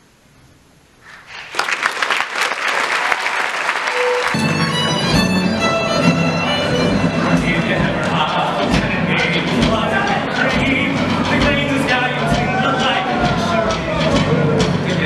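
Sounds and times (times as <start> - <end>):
audience applause: 1.1 - 15.0
instrumental music: 3.9 - 15.0.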